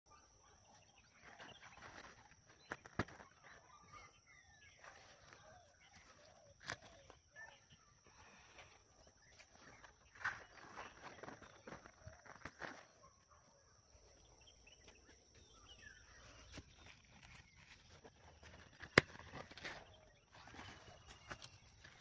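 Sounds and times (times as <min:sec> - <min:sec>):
rustling of dry straw and leaves: 0:04.7 - 0:13.0, 0:16.0 - 0:22.0.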